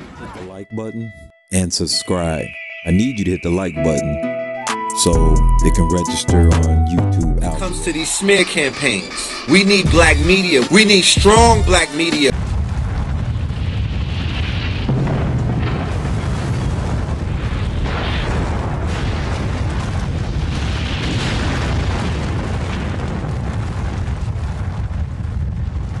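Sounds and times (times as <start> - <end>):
hissing noise: 7.4 - 12.3
explosion low rumble: 11.2 - 26.0.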